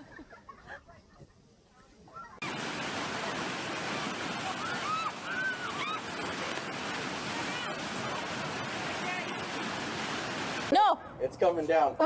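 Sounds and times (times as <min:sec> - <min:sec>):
whitewater rushing: 0:02.4 - 0:10.7
people yelling: 0:04.2 - 0:09.5.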